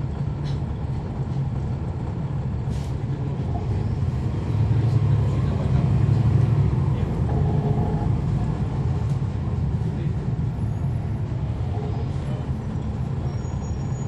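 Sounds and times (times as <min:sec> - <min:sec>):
bus diesel engine drone: 0:00.0 - 0:14.0.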